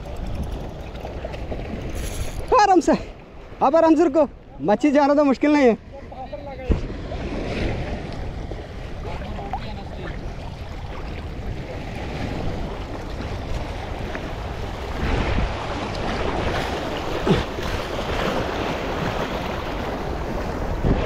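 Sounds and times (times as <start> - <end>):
wind buffeting microphone: 6.0 - 21.0
sea waves washing over rocks: 6.6 - 21.0.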